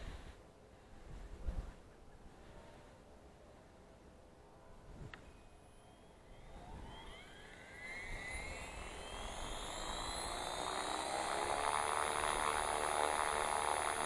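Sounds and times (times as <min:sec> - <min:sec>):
model helicopter rotor whine: 0:05.1 - 0:14.0.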